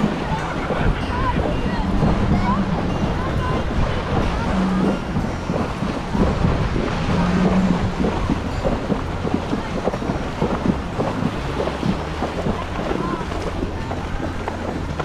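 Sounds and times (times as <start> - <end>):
horse splashing through water: 0.0 - 15.0
wind on microphone: 0.0 - 15.0.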